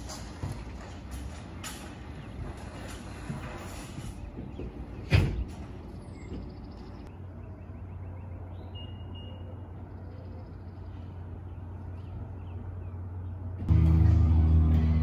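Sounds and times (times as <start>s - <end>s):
faint outdoor background noise: 0.0s - 15.0s
low vehicle hum: 5.4s - 15.0s.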